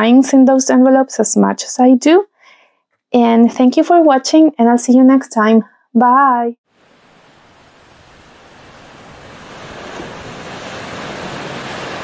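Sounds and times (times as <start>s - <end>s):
rushing noise: 6.7s - 12.0s.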